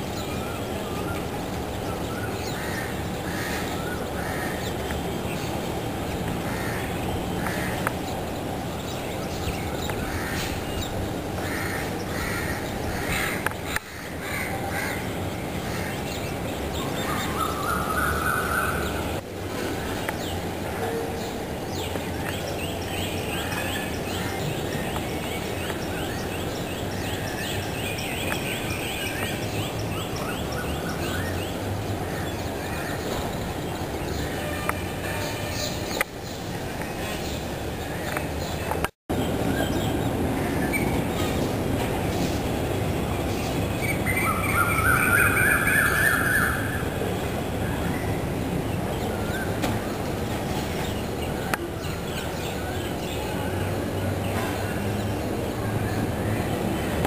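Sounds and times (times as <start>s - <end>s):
low city rumble: 0.0s - 57.0s
crows cawing: 6.5s - 7.8s, 11.4s - 15.0s.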